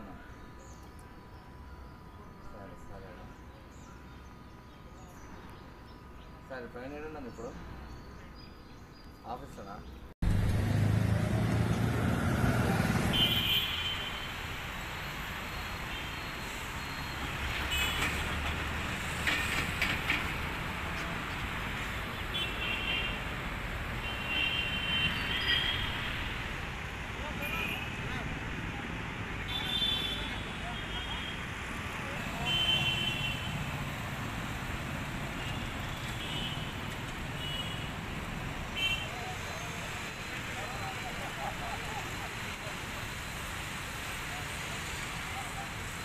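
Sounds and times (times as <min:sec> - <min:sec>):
traffic rumble: 0:00.0 - 0:46.0
passing cars and motorbikes: 0:10.2 - 0:22.6, 0:23.2 - 0:46.0.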